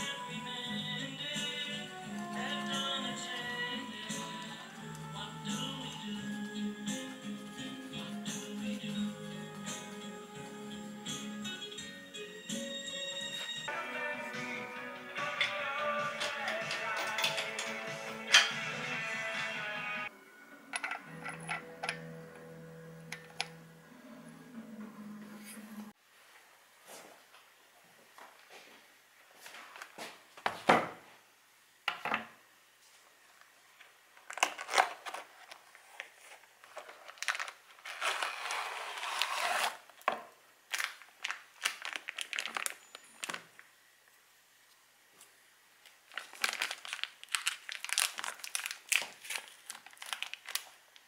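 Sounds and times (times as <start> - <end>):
foil crinkling: 34.2 - 40.0, 40.7 - 43.6, 45.8 - 51.0.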